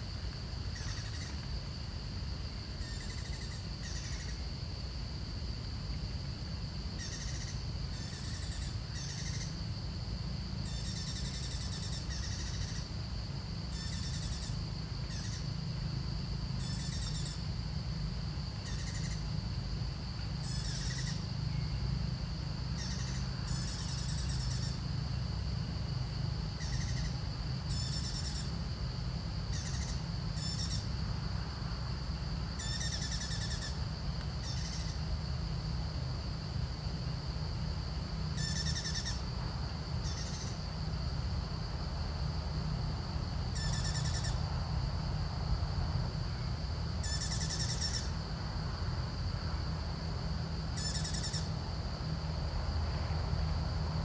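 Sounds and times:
high-pitched insect drone: 7.0 - 9.7, 10.6 - 13.0, 16.6 - 17.5, 18.6 - 19.4, 20.4 - 22.0, 22.7 - 25.0, 26.6 - 27.1, 27.7 - 28.6, 29.5 - 30.9, 32.5 - 33.8, 34.4 - 35.0, 37.2 - 39.3, 43.2 - 44.5, 46.2 - 48.3, 50.1 - 52.3.

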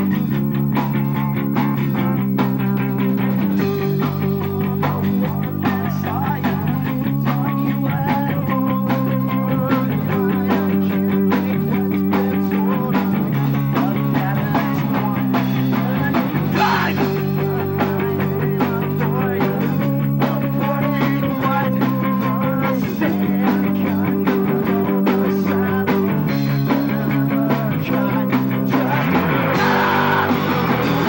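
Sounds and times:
drum kit beating: 0.0 - 31.0
electric guitars strumming: 0.0 - 31.0.

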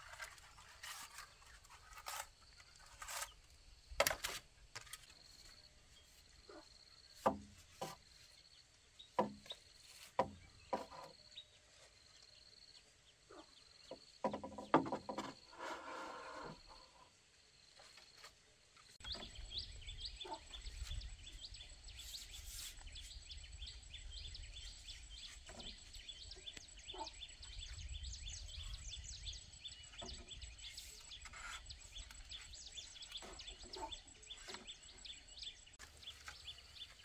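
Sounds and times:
bamboo poles knocking and rattling: 0.0 - 6.2, 7.1 - 8.3, 9.1 - 11.2, 13.8 - 15.8, 17.8 - 19.4, 25.3 - 26.0, 29.9 - 35.0, 35.8 - 37.0.

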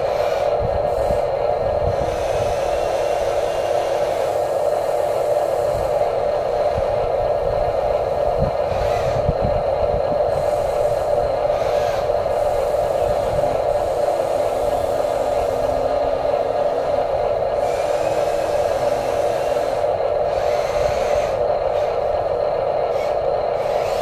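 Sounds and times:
electric motors whirring: 7.9 - 24.0.

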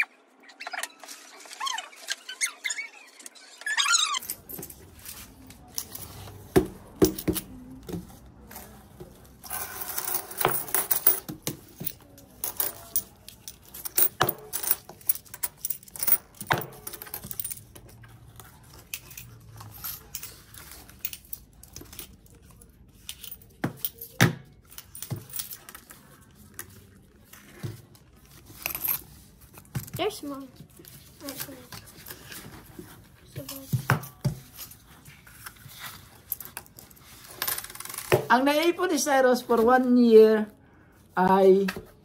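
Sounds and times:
coins jingling: 4.2 - 6.4, 9.4 - 18.0, 18.7 - 25.9, 28.5 - 29.2, 36.1 - 38.1
coins clinking: 4.2 - 18.0, 18.6 - 26.0, 28.4 - 30.0, 36.0 - 38.1.

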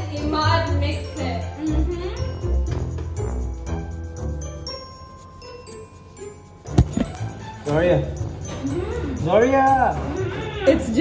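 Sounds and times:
bass: 0.0 - 5.0, 6.7 - 11.0
bell-like music notes: 0.0 - 11.0.

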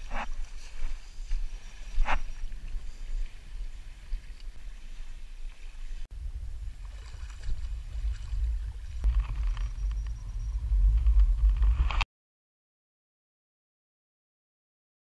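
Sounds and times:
water splashing around kayak: 0.0 - 10.0
wind rumble on microphone: 0.0 - 12.1.

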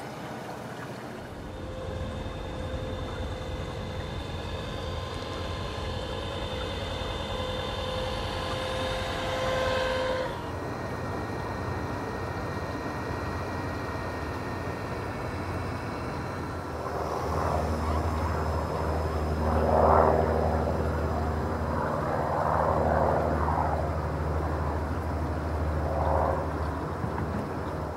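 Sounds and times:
low engine drone: 0.0 - 27.9
rushing noise: 1.2 - 10.6.

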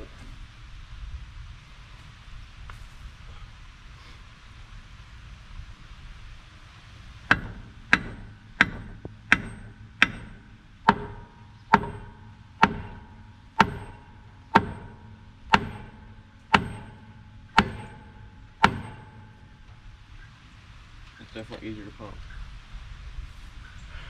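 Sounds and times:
hydraulic jack metallic clacks: 7.3 - 19.6.

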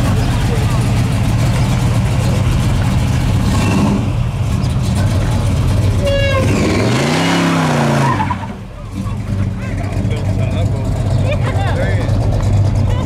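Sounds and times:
engine running and revving: 0.0 - 13.0.

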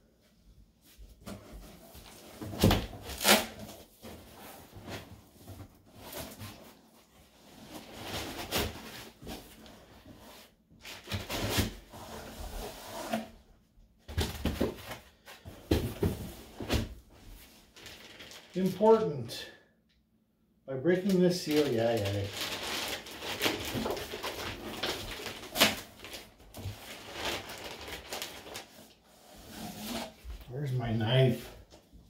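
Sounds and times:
cardboard and foam rustling: 14.0 - 18.9, 21.0 - 31.9.

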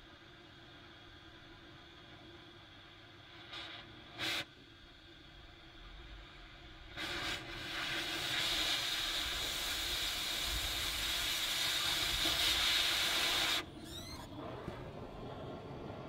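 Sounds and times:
cutting torch hissing: 2.8 - 4.6, 5.6 - 14.6.

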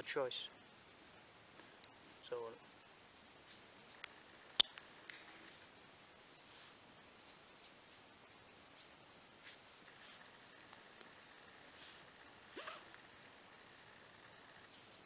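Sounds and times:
faint bird chirps: 2.2 - 5.1, 5.9 - 7.4, 9.4 - 15.0.

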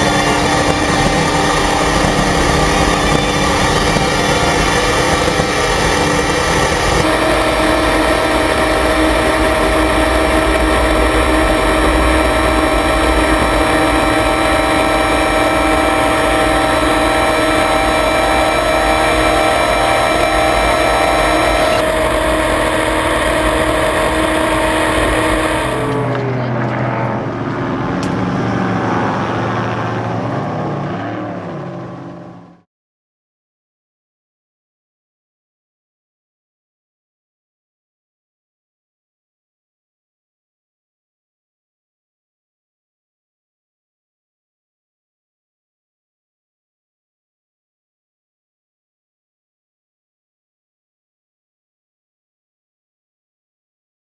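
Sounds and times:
voices: 0.0 - 28.2
boat engine running hard: 0.0 - 32.6.

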